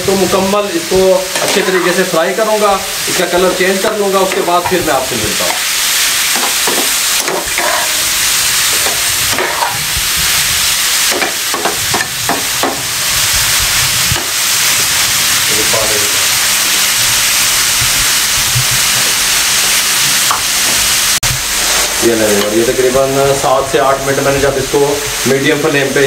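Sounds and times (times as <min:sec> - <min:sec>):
chicken sizzling in oil: 0:00.0 - 0:26.0
metal spatula scraping pan: 0:01.3 - 0:02.0, 0:06.3 - 0:08.1, 0:08.7 - 0:09.8, 0:21.5 - 0:22.5.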